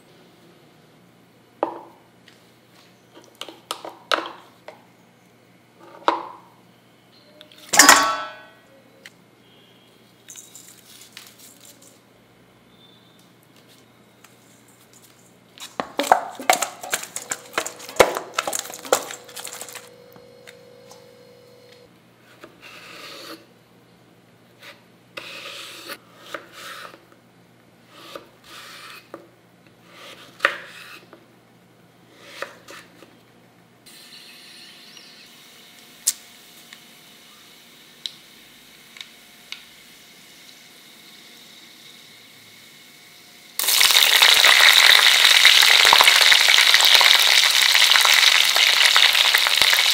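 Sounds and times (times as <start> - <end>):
clattering in a steel bowl: 7.7 - 8.5, 15.8 - 19.9
chillies sizzling in hot oil: 43.6 - 49.9.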